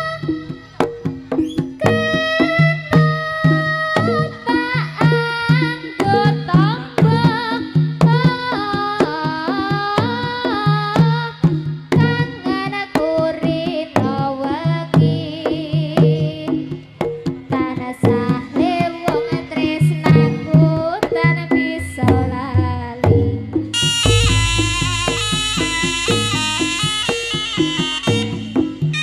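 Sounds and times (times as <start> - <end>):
drum strokes: 0.0 - 29.0
sliding melody line: 23.7 - 29.0.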